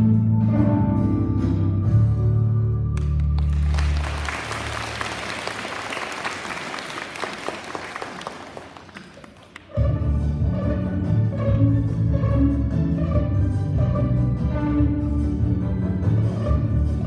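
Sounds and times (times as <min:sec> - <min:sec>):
audience applause: 0:03.0 - 0:09.7.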